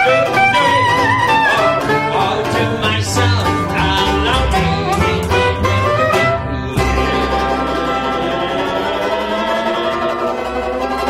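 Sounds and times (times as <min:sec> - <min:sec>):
soprano saxophone melody: 0:00.0 - 0:02.2
banjo strumming: 0:00.0 - 0:11.0
plucked double bass: 0:00.0 - 0:11.0.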